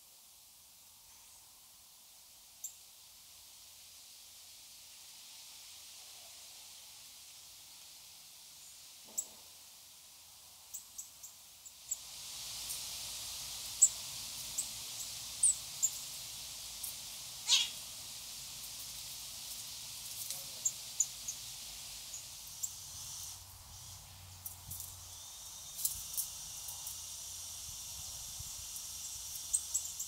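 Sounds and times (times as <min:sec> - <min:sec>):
outdoor hiss: 0:00.0 - 0:30.0
songbirds chirping: 0:12.8 - 0:27.2.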